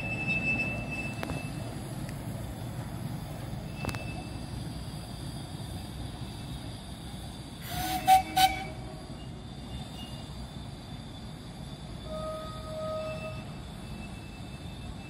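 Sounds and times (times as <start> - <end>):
steam locomotive whistle toots: 7.6 - 10.2, 12.0 - 14.8.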